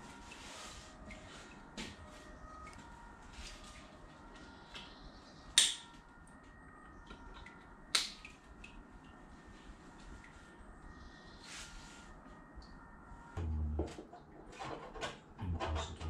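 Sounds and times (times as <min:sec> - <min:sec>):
plastic connectors snapping together: 0:05.6 - 0:05.9.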